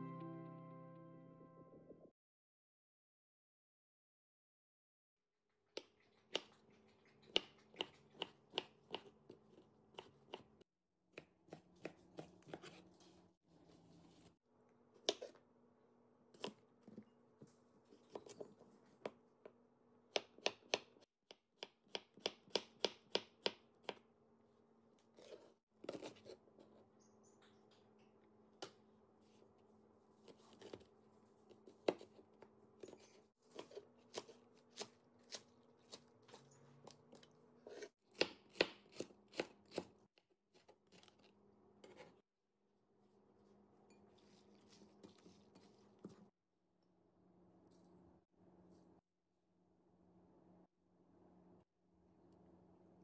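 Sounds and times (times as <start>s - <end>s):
knife chopping on wooden board: 37.7s - 40.0s.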